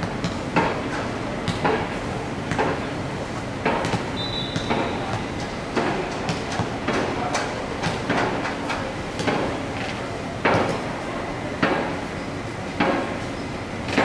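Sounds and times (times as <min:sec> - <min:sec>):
outdoor background noise: 0:00.0 - 0:14.0
players calling: 0:04.1 - 0:05.5.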